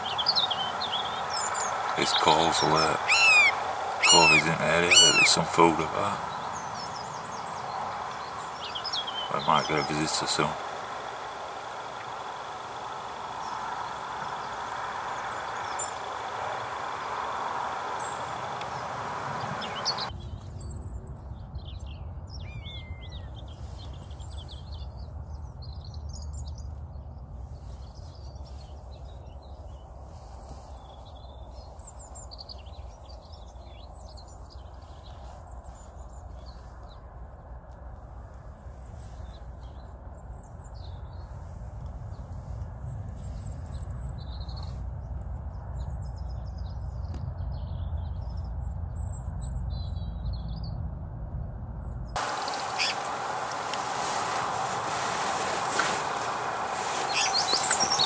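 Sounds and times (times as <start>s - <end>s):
even hiss: 0.0s - 20.1s, 52.2s - 58.0s
songbirds chirping and trilling: 0.0s - 37.1s, 45.6s - 50.8s, 52.1s - 58.0s.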